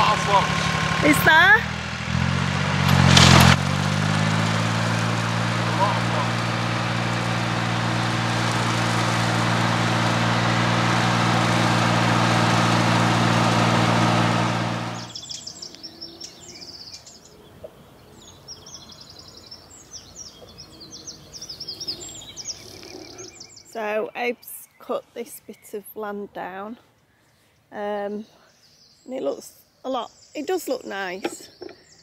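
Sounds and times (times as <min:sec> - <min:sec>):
ride-on mower engine running: 0:00.0 - 0:15.4
birds chirping and singing: 0:15.0 - 0:26.0.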